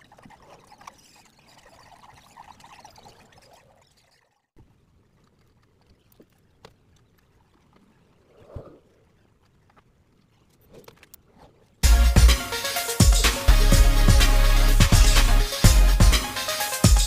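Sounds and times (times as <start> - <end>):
small clicks: 4.6 - 8.2, 9.0 - 11.5.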